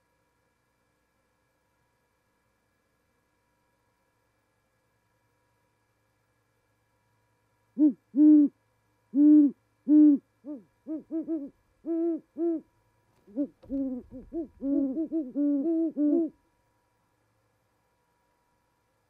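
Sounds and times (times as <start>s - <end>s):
owls hooting: 7.8s - 16.4s
low thump and rumble: 13.6s - 14.6s.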